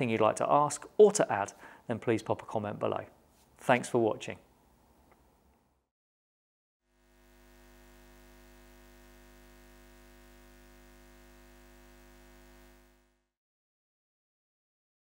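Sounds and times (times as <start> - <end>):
neon sign electrical hum: 6.9 - 13.3.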